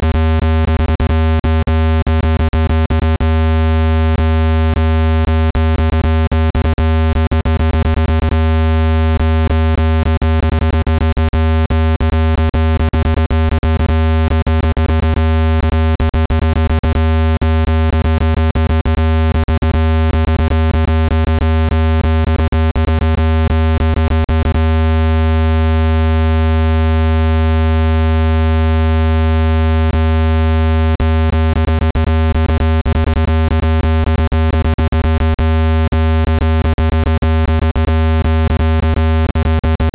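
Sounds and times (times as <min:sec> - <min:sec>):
low-pitched synthesized buzz: 0:00.0 - 0:39.9.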